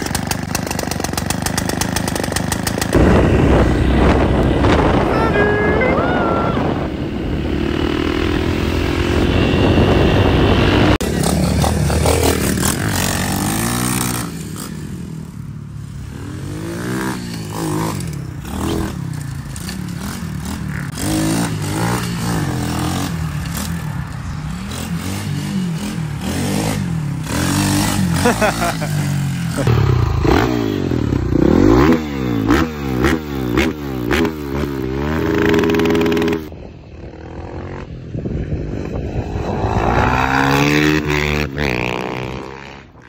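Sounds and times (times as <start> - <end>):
pit bike engine revving: 0.0 - 5.2, 6.6 - 36.5, 38.5 - 43.0
motorcycle engine riding: 0.0 - 43.0
wind noise: 2.8 - 11.0, 36.5 - 43.0.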